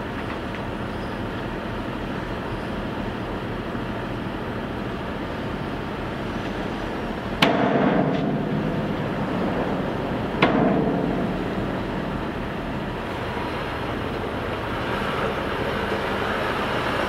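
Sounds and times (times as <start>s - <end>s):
load rumbling as it slides out: 5.2s - 17.0s
diesel truck engine: 8.2s - 17.0s.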